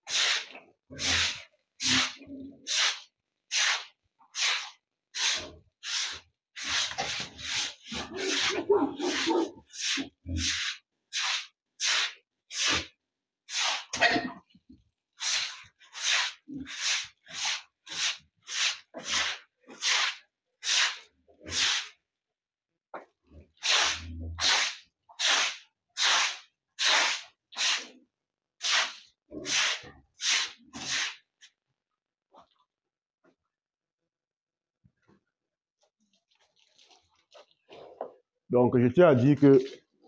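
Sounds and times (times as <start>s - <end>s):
broom scrubbing wet concrete floor: 0.0s - 22.0s, 23.0s - 31.6s.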